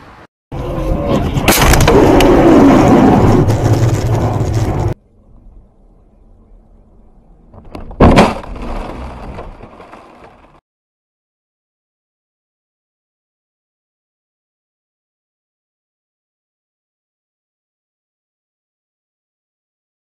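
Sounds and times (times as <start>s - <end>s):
low road noise: 0.0s - 10.6s
car collision crash: 1.1s - 4.6s, 7.7s - 10.6s
sudden loud impact: 1.1s - 5.0s, 8.0s - 9.5s.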